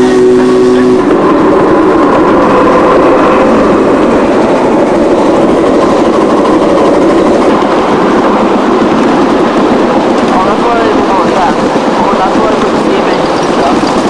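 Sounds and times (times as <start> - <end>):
train wheels clattering on rails: 1.0 - 14.0.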